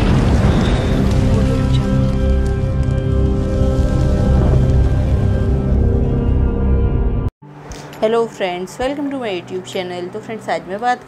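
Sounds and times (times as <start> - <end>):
deep rumble: 0.0 - 7.3
dark ominous music held notes: 0.1 - 7.3.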